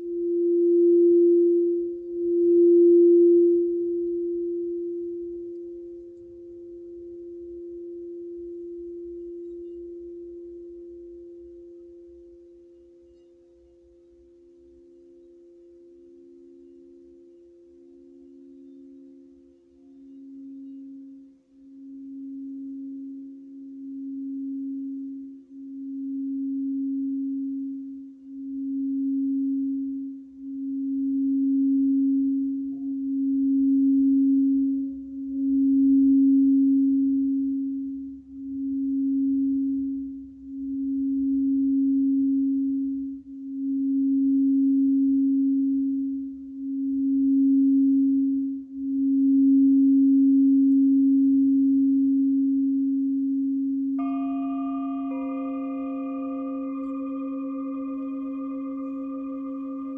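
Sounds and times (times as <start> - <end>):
crystal singing bowl tone: 0.0 - 59.9.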